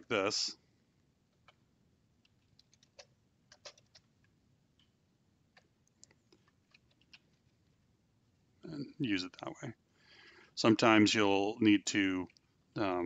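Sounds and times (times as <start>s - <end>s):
faint keyboard keystrokes: 2.2s - 4.9s, 5.5s - 7.5s.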